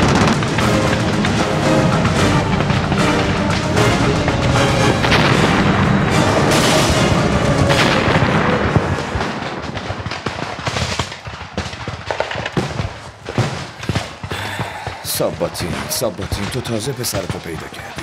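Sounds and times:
dramatic music score: 0.0s - 9.8s
explosions: 0.0s - 18.0s
gunfire: 0.0s - 18.0s.

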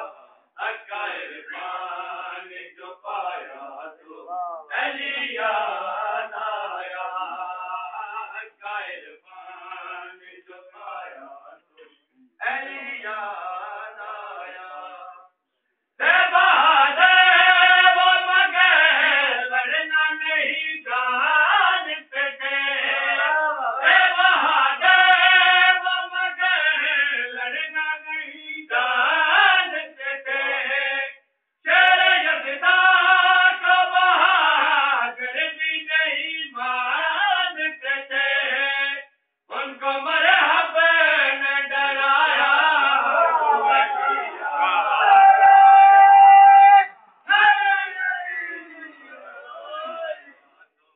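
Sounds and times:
man chanting: 0.0s - 11.6s, 31.7s - 50.9s.

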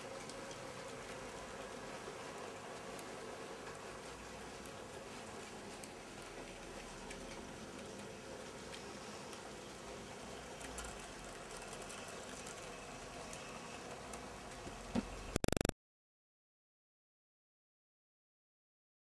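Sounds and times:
loud rapid stutter: 15.4s - 15.7s.

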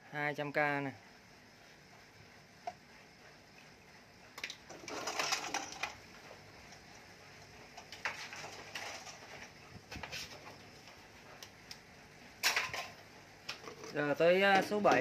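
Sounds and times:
objects clattering on workbench: 4.4s - 6.0s, 7.8s - 10.6s, 12.4s - 14.0s.

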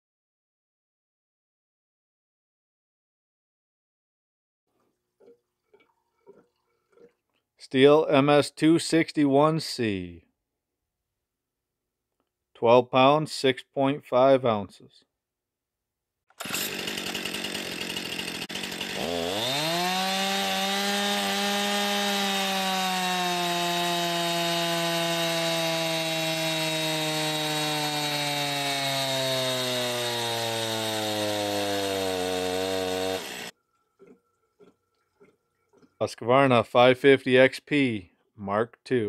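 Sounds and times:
chainsaw running at full throttle: 16.4s - 33.6s.

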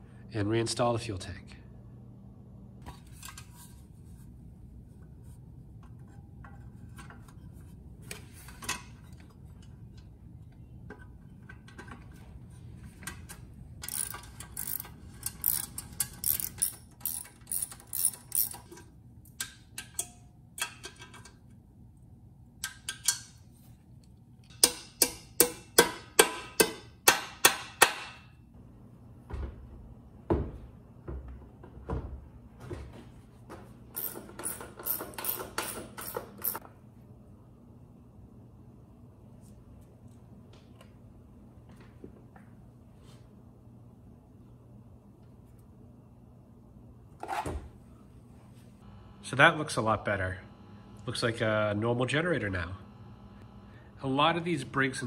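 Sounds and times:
socket ratchet clicking: 13.8s - 18.7s.

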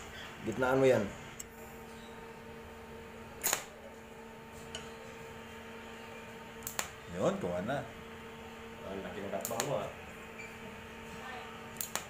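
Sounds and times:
welding machine electrical hum: 0.0s - 12.0s
sharp clicks: 3.4s - 3.7s, 6.6s - 6.9s, 9.4s - 9.8s, 11.8s - 12.0s.

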